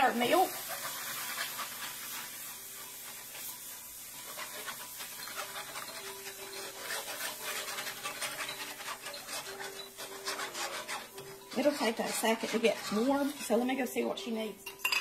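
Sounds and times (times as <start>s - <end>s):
whisk scraping a skillet: 0.0s - 15.0s.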